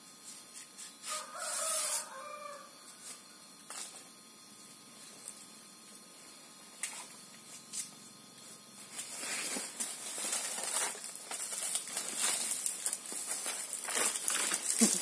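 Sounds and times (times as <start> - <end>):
plant sheaths rustling and tearing: 9.0 - 15.0.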